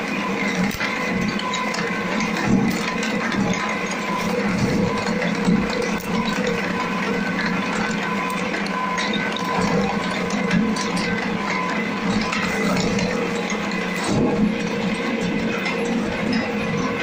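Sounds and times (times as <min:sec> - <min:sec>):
shredder motor humming: 0:00.0 - 0:17.0.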